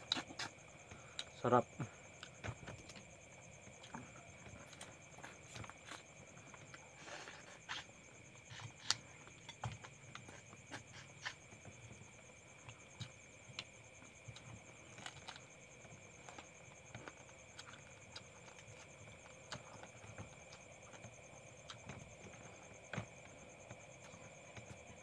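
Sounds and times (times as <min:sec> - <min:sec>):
chewing and sucking: 0:00.0 - 0:01.3.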